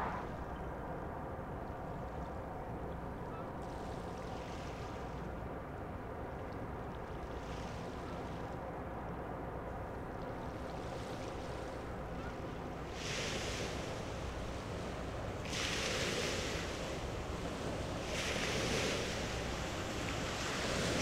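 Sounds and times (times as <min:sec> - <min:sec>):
low rumble: 0:00.0 - 0:00.5
waves washing: 0:00.0 - 0:00.5, 0:10.3 - 0:21.0.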